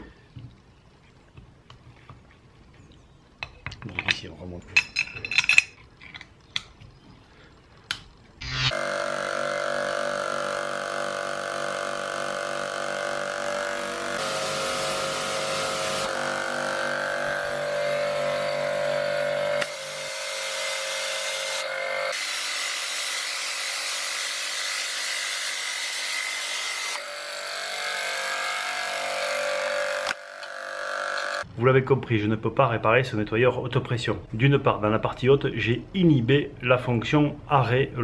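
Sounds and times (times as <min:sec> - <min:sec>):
pressure washer motor humming: 0:08.4 - 0:23.0
high-pressure water jet hissing: 0:14.2 - 0:16.6, 0:19.6 - 0:24.0.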